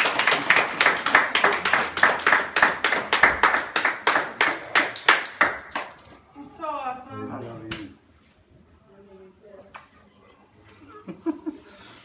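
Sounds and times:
people clapping: 0.0s - 6.2s.

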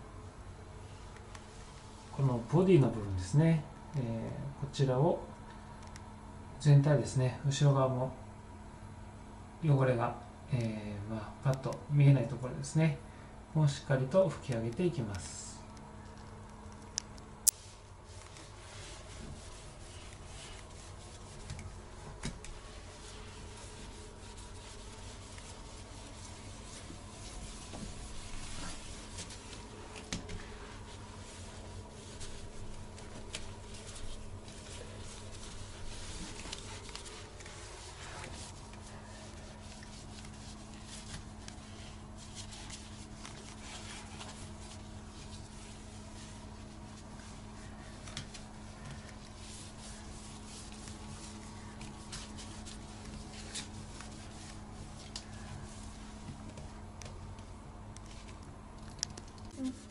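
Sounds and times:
steady low hum: 0.0s - 59.9s
cloth rubbing ceramic: 17.6s - 56.2s.

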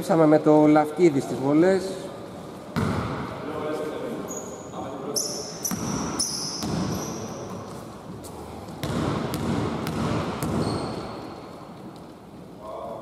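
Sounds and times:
basketball bouncing on hardwood: 2.8s - 3.2s, 5.7s - 7.0s, 8.7s - 11.0s
sneaker squeaks: 4.2s - 11.7s.

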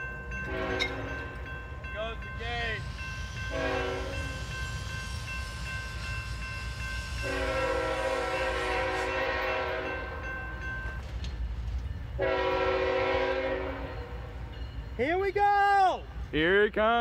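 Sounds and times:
locomotive air horn blasts: 0.5s - 1.2s, 3.5s - 4.5s, 7.2s - 10.2s, 12.2s - 14.1s.

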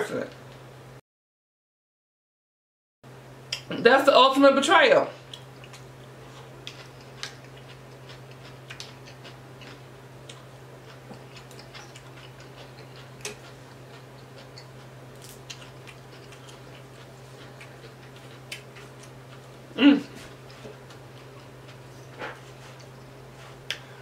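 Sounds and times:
steady low hum: 3.1s - 24.0s
wet chewing mouth clicks: 6.6s - 10.5s, 11.1s - 19.2s.

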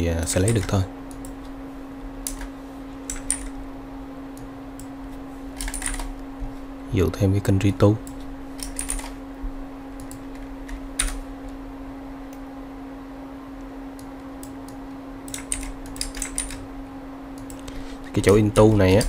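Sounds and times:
low hum: 0.0s - 19.0s
computer keyboard typing: 0.3s - 1.4s, 2.2s - 2.5s, 3.1s - 3.6s, 5.6s - 6.1s, 8.1s - 9.2s, 10.0s - 11.2s, 14.0s - 16.6s.

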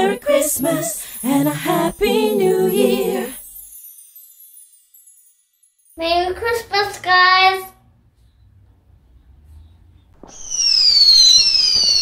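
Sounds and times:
fireworks crackling hiss: 0.0s - 4.6s, 10.2s - 12.0s
fireworks pops: 10.2s - 12.0s
fireworks whistles: 10.2s - 12.0s.

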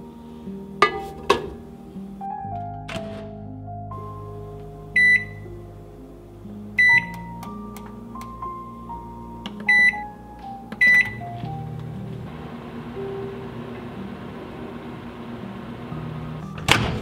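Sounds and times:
oven control panel beeps: 5.0s - 5.5s, 6.8s - 7.2s, 9.6s - 10.1s, 10.7s - 11.3s.

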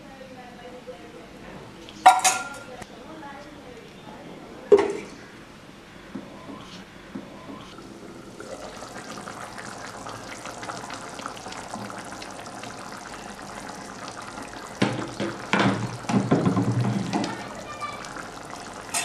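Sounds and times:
curry bubbling in a pot: 7.6s - 19.0s
loud knocks: 14.8s - 17.3s.

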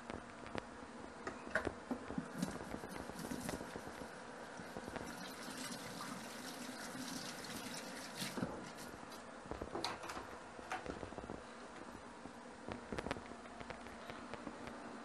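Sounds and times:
tap running water: 2.2s - 8.9s.

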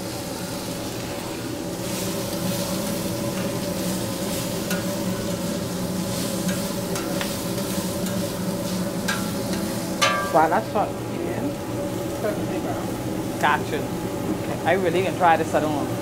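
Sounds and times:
spinach sizzling in a pan: 0.0s - 16.0s
utensil clicking against pan: 6.4s - 8.2s.

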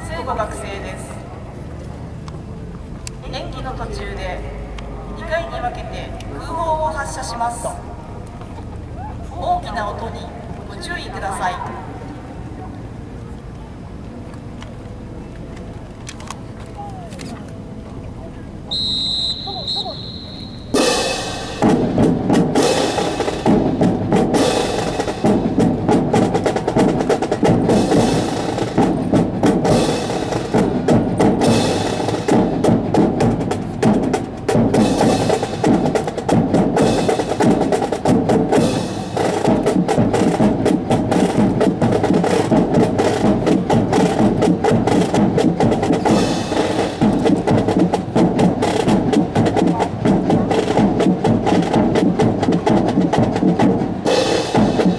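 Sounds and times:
march music with snare drums: 18.7s - 54.9s.

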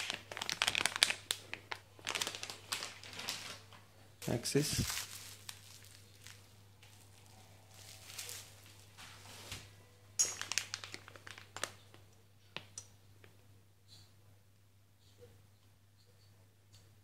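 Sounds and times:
plastic bag crinkling: 0.0s - 9.6s, 10.2s - 12.0s.

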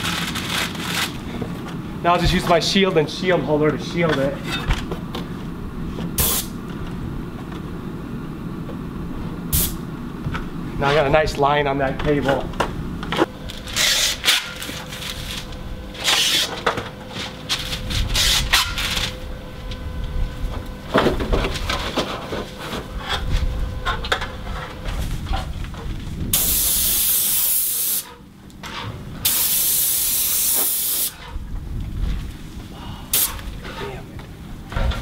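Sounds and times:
paint spray gun hissing: 6.2s - 6.5s, 26.4s - 28.1s, 29.3s - 31.2s.

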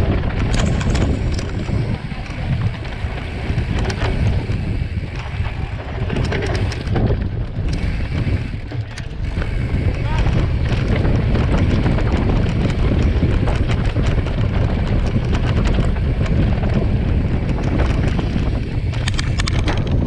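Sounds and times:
bike knocks and rattles: 0.0s - 20.0s
bike tyres on dirt: 0.0s - 20.0s
wind rushing over microphone: 0.0s - 20.0s.

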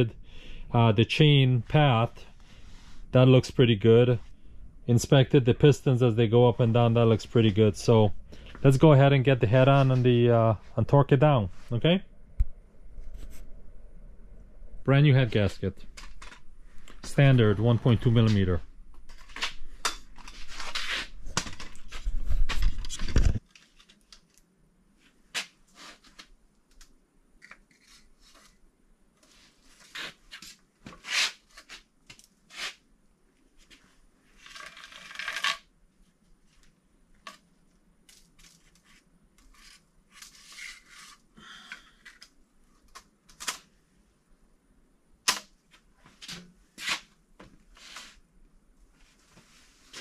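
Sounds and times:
crinkly rustles: 17.8s - 24.4s.

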